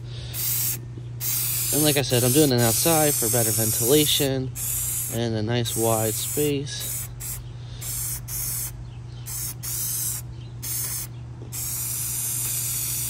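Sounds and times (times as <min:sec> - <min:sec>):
aerosol can spraying: 0:00.4 - 0:08.7, 0:09.3 - 0:13.0.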